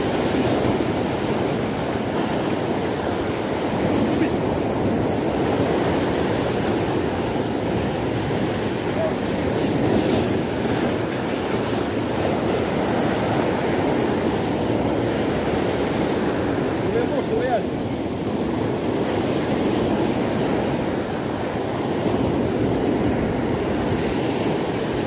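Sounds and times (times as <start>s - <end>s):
waves washing and breaking: 0.0s - 25.0s
wind: 0.0s - 25.0s.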